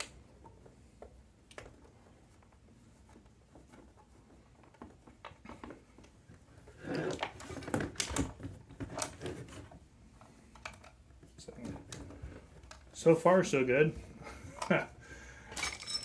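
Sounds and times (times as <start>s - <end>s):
clicks and taps of parts: 10.5s - 12.9s.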